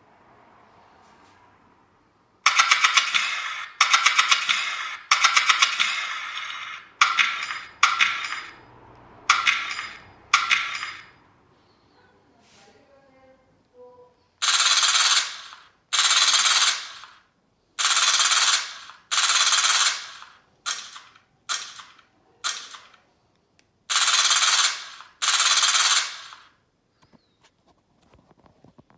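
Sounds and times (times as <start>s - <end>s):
machine-gun fire sound effect: 2.4s - 8.6s, 9.3s - 11.2s, 14.4s - 23.0s, 23.9s - 26.6s.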